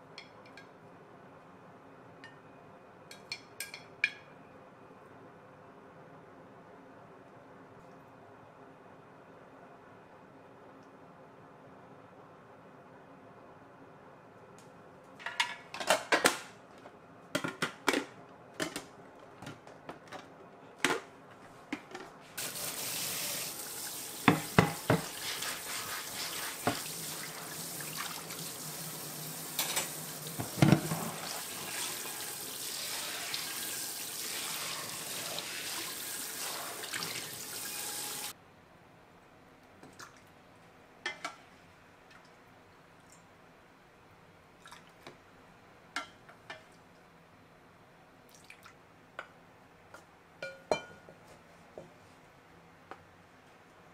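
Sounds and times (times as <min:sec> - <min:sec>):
frying pan being scrubbed: 0:22.4 - 0:38.3
pan knocking against sink: 0:24.2 - 0:25.2, 0:30.4 - 0:31.1
tap running into metal sink: 0:24.2 - 0:25.2, 0:26.6 - 0:27.0, 0:29.5 - 0:31.4
spoon clinking glass bowl: 0:50.4 - 0:51.0.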